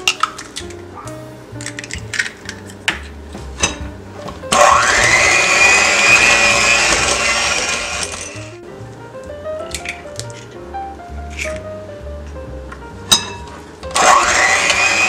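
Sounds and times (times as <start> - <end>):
beaters churning batter: 0.0 - 8.6, 13.1 - 15.0
soft background music: 0.0 - 15.0
hand mixer motor whine: 4.5 - 8.4, 14.0 - 15.0.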